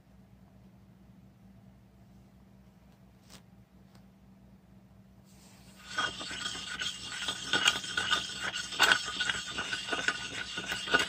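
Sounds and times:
tool scraping paste on stone: 5.7s - 11.0s.

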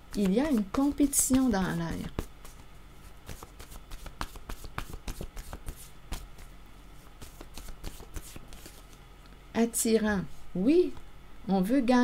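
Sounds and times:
cards being shuffled: 0.1s - 9.0s.

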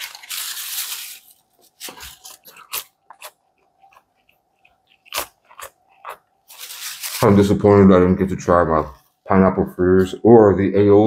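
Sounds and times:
crisp crackles and clicks: 0.0s - 7.4s
paper packaging rustling and tearing: 0.0s - 7.7s.

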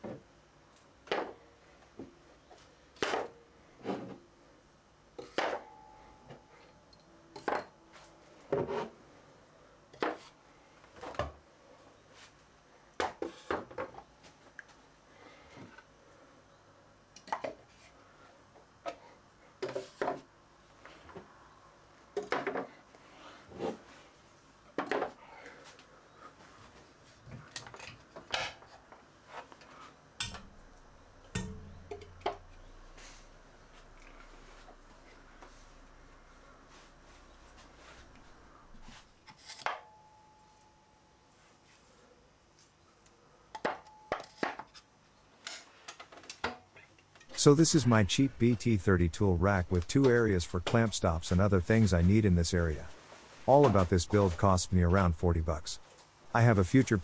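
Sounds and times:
low hum: 30.2s - 39.2s, 47.3s - 57.0s
loud metal clank: 31.3s - 32.4s.

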